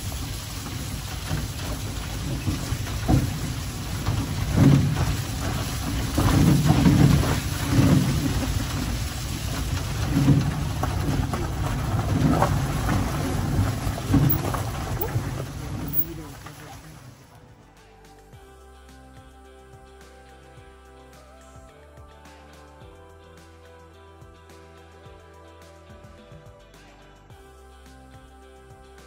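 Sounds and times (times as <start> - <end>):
cart jolts and knocks: 0.0 - 16.7
cart wheels rumbling on gravel: 0.0 - 17.3.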